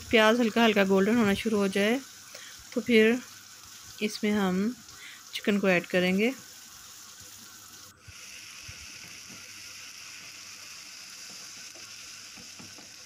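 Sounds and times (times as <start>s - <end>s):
vegetables sizzling in oil: 0.0s - 13.0s
spatula scraping and tapping pan: 11.2s - 13.0s.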